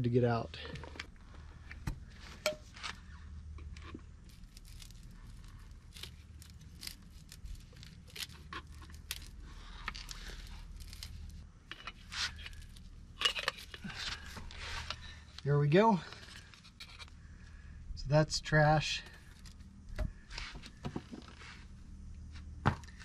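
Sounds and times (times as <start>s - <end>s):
metal tool scraping and clicking: 11.7s - 13.8s.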